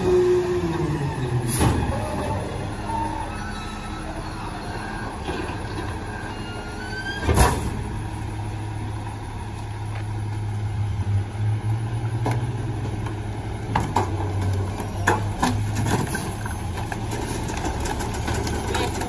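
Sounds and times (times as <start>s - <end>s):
faint squeals: 0.0s - 7.8s
garbage truck diesel engine: 0.0s - 19.0s.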